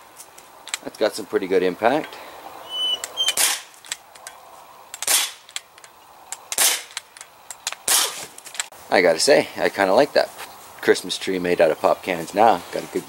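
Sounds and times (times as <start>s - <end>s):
air pistol firing pops: 3.3s - 3.7s, 5.0s - 5.5s, 6.5s - 7.1s, 7.7s - 8.3s.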